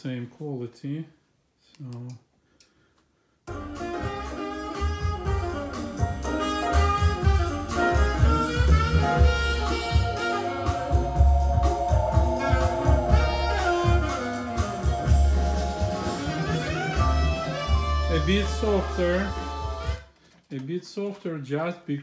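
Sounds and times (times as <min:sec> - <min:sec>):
instrumental music with pulsing bass: 0:03.5 - 0:20.0.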